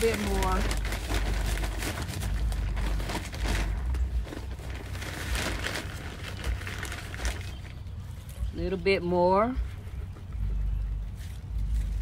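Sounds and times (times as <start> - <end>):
plastic bag crinkling: 0.0 - 8.3
low rumble: 0.0 - 12.0.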